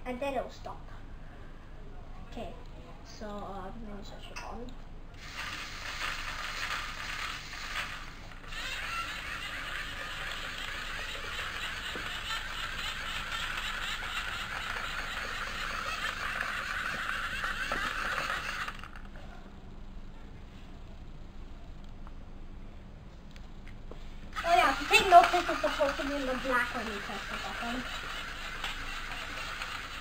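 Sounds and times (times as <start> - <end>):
motors and plastic gears whirring: 5.2 - 19.2, 24.3 - 30.0.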